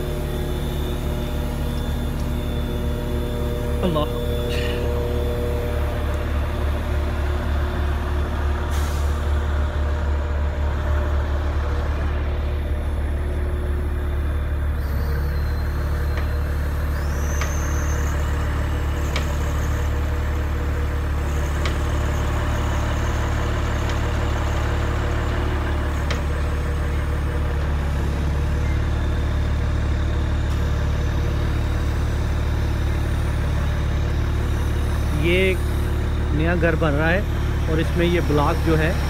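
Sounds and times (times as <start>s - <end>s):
short high whine: 0.0s - 9.2s
diesel truck engine running: 0.0s - 39.0s.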